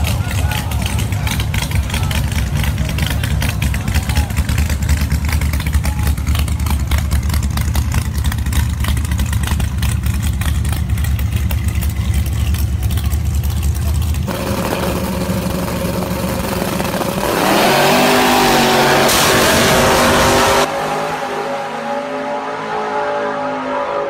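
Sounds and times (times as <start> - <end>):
race car engines idling: 0.0 - 20.8
race car engines revving: 0.0 - 24.0.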